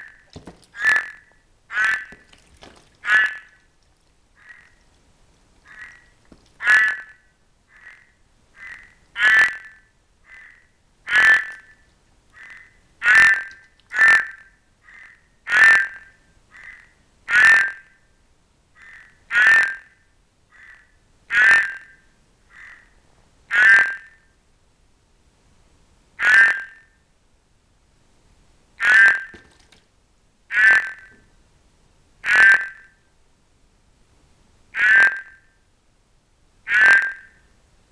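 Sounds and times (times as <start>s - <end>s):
frog croaking: 0.0s - 3.7s, 4.3s - 4.8s, 5.6s - 18.1s, 18.8s - 24.4s, 26.2s - 27.0s, 28.8s - 29.5s, 30.5s - 31.2s, 32.2s - 33.1s, 34.7s - 35.6s, 36.6s - 37.5s.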